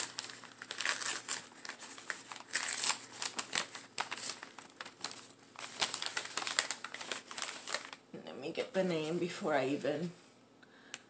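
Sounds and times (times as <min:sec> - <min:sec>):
packing material crinkling: 0:00.0 - 0:08.1.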